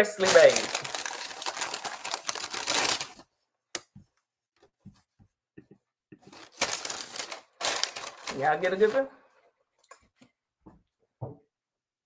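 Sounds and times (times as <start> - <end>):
parchment paper crinkling: 0.0 - 3.9, 6.2 - 9.1.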